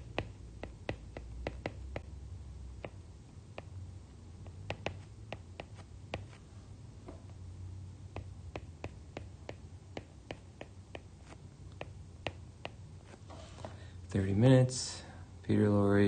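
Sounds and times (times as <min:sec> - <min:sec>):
stylus tapping on glass screen: 0:00.0 - 0:02.1, 0:04.7 - 0:06.4, 0:08.1 - 0:11.1
low steady hum: 0:00.0 - 0:16.0.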